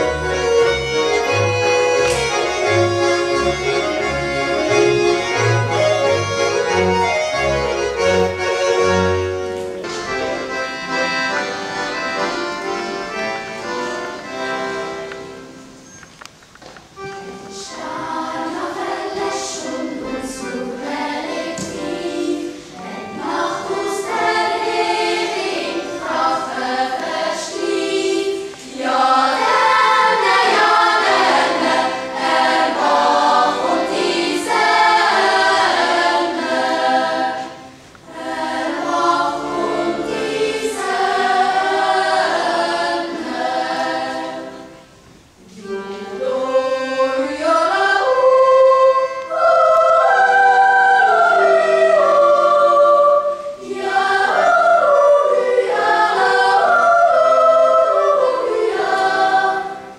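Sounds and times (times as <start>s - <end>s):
choir yodelling in harmony: 17.6s - 44.8s, 45.4s - 59.9s.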